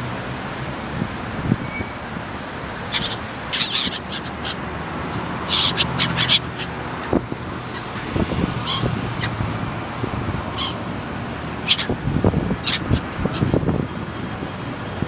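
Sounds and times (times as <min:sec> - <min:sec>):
wind noise on microphone: 0:00.8 - 0:02.5, 0:06.8 - 0:15.0
gulls crying: 0:02.6 - 0:09.6, 0:10.4 - 0:13.8.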